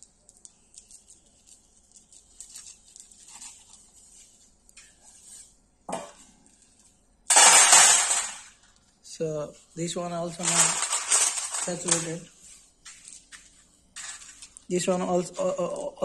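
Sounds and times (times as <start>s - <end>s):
stone chips clattering on steel tray: 7.3s - 8.6s, 10.3s - 12.3s, 14.0s - 14.5s.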